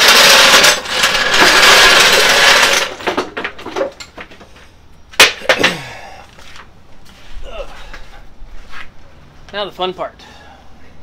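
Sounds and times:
floor jack scraping on concrete: 0.0 - 4.7.

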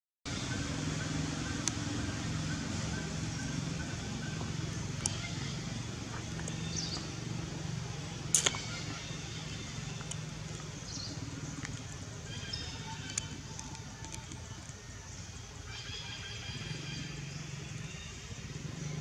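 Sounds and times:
steady low hum: 0.3 - 19.0
sharp click: 8.3 - 8.7.

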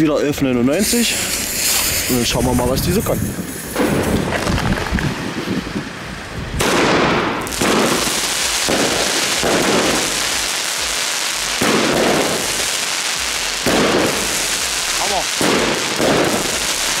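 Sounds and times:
firework cake bangs: 6.6 - 17.0.

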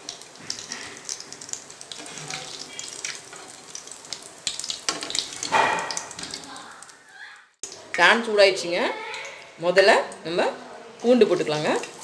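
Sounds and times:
oil crackling: 0.0 - 7.0
frying in hot oil: 0.0 - 12.0.

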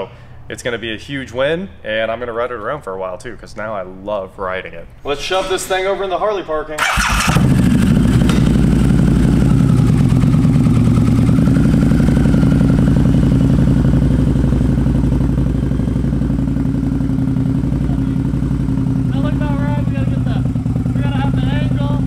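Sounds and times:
motorcycle engine idling: 6.8 - 22.0.

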